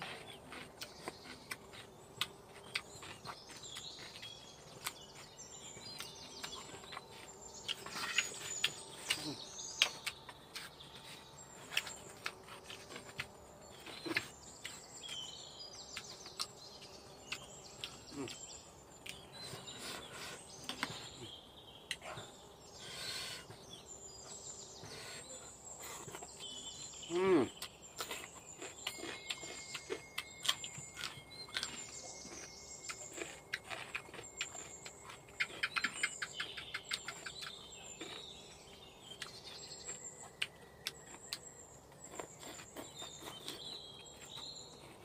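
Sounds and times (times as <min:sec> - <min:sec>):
birds chirping: 0:00.0 - 0:45.0
outdoor background noise: 0:00.0 - 0:45.0
chewing smacks: 0:27.6 - 0:38.3.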